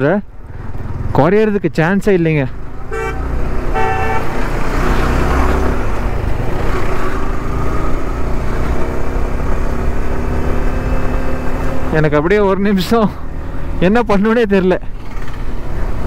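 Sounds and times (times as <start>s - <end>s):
motorcycle engine rumble: 0.0s - 16.0s
wind and road noise: 0.0s - 16.0s
vehicle horn: 2.8s - 4.4s.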